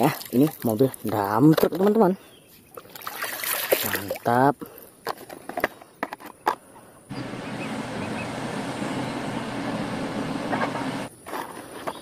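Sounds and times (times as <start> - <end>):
heavy machinery engine drone: 7.1 - 11.1.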